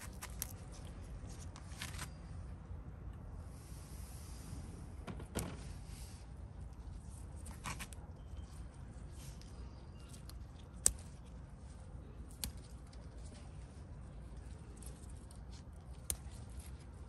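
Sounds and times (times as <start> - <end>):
stems snapping: 0.0 - 0.9, 9.4 - 13.6, 14.2 - 17.0.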